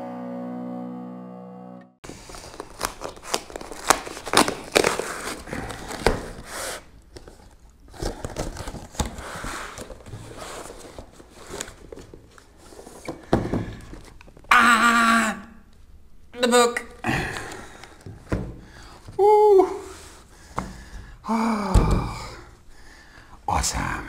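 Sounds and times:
paper crinkling: 2.0s - 13.1s
cardboard ripping: 2.1s - 12.3s.

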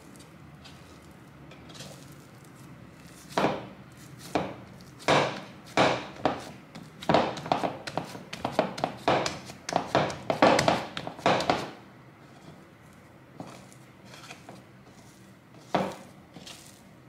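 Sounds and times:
palm slapping bread dough: 3.0s - 11.8s.

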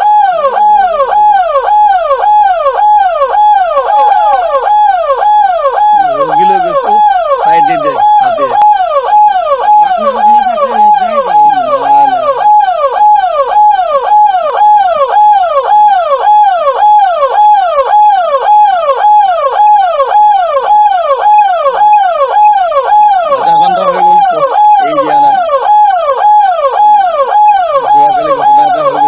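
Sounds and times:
ambulance siren wailing: 0.0s - 29.0s
voices: 3.8s - 4.6s, 6.0s - 8.7s, 9.9s - 12.4s, 23.3s - 25.6s, 27.9s - 29.0s.

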